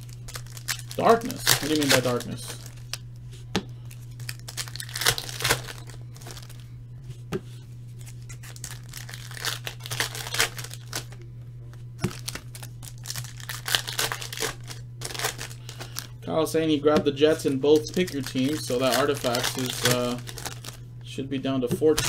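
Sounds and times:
wrapper tearing and crinkling: 0.0s - 3.0s, 4.1s - 6.6s, 8.0s - 11.2s, 12.0s - 16.1s, 17.4s - 20.8s
low hum: 0.0s - 22.0s.

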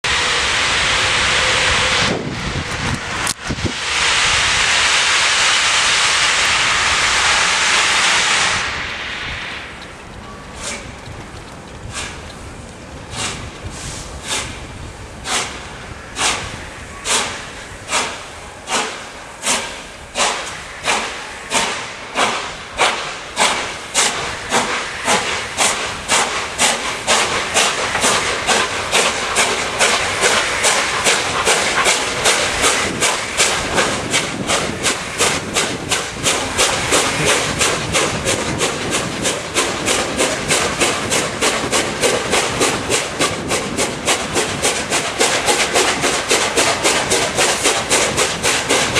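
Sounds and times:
steam locomotive chuffing: 0.0s - 48.9s.

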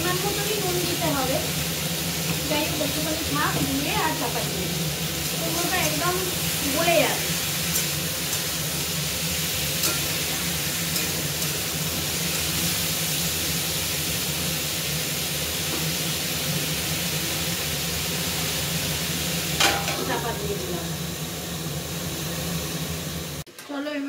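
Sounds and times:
food sizzling in oil: 0.0s - 23.5s
metal lid clattering onto pan: 19.6s - 20.1s.

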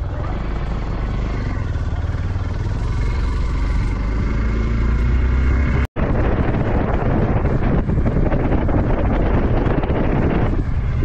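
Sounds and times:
motorcycle engine rumbling: 0.0s - 11.0s.

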